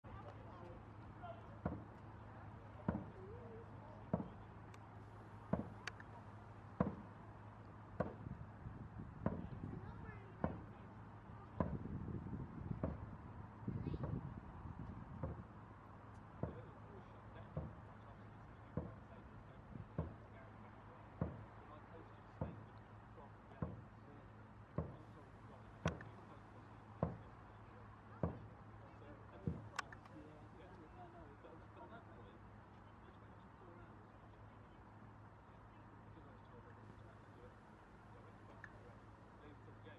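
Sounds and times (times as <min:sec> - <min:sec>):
drum thumps: 0:06.8 - 0:07.1.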